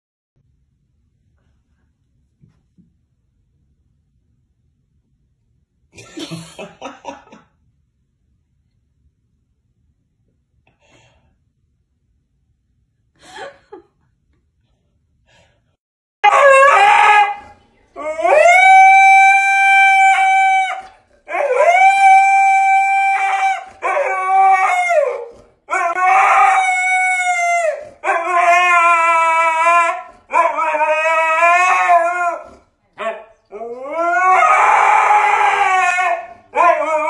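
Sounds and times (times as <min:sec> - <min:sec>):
husky howling: 0:16.2 - 0:37.0.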